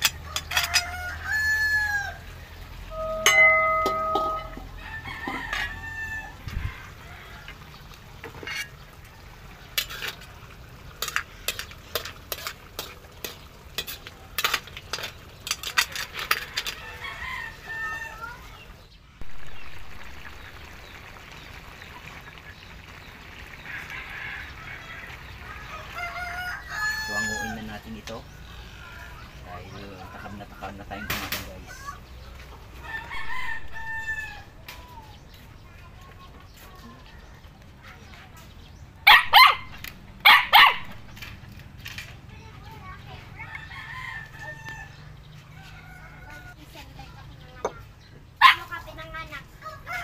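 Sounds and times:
rooster crowing: 0.0 - 2.3, 2.9 - 7.6, 16.5 - 18.4, 23.6 - 27.7, 32.8 - 34.5, 43.4 - 46.6
metal ladle clinking in a wok: 3.0 - 4.8.

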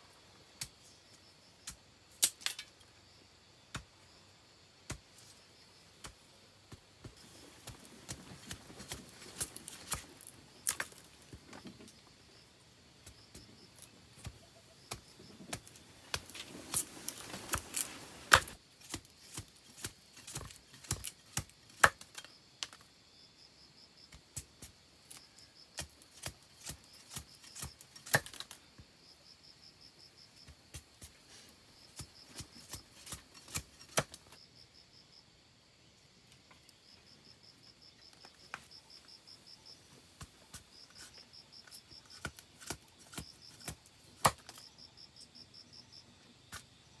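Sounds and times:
bamboo cracking and snapping: 2.1 - 2.8, 7.2 - 11.8, 14.9 - 22.9, 25.8 - 28.6, 32.6 - 34.4, 42.1 - 44.6
knife splitting bamboo: 13.8 - 22.8, 25.8 - 28.6, 32.0 - 34.4, 40.6 - 44.6.

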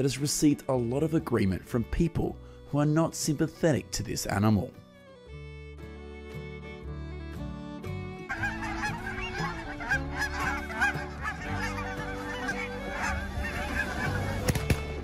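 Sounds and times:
background music: 0.0 - 15.0
geese honking: 8.2 - 15.0.

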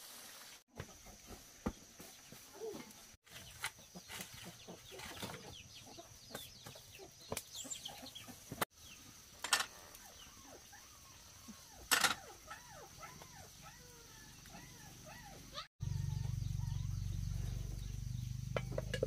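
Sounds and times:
chickens clucking: 3.5 - 8.7.

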